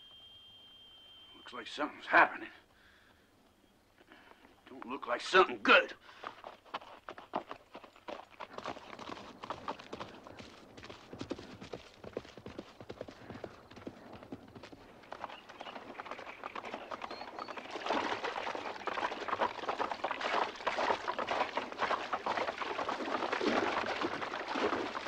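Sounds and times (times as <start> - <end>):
horses galloping hoofbeats: 6.0 - 25.0
horses splashing through water: 6.2 - 25.0.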